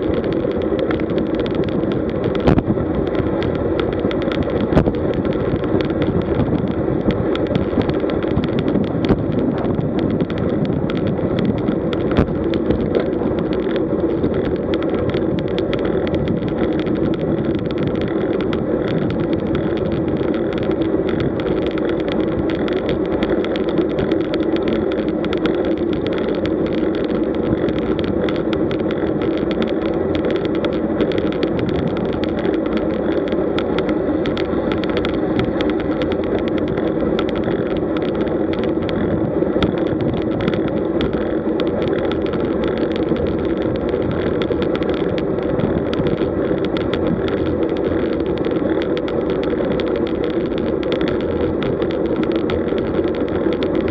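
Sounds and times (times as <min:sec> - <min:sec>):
bike tyres on asphalt: 0:00.0 - 0:53.9
small ticks and knocks: 0:00.0 - 0:53.9.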